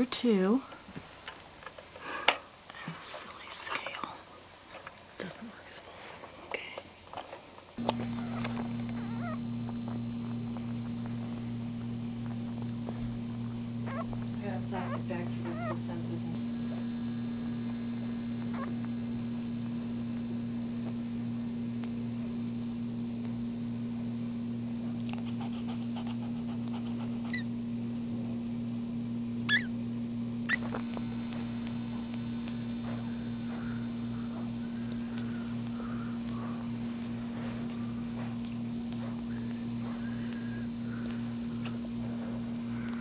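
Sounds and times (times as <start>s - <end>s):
low electrical hum: 0.0s - 43.0s
puppies squeaking: 8.2s - 9.4s, 13.9s - 14.2s, 14.8s - 15.9s, 29.5s - 29.7s.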